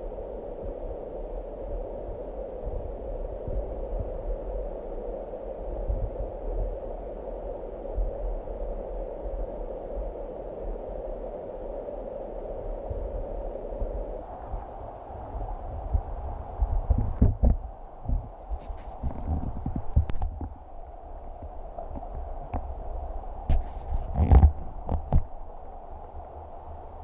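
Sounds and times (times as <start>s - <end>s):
low rumble: 14.1s - 25.7s.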